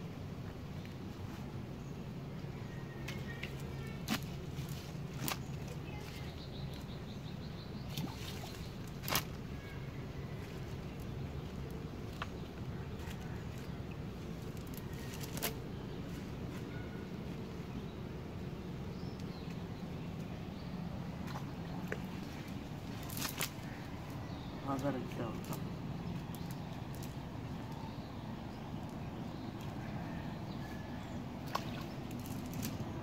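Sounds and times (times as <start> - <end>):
steady low hum: 0.0 - 33.0
net and dry leaves rustling: 3.2 - 6.9, 7.9 - 17.7, 22.2 - 29.0, 31.4 - 33.0.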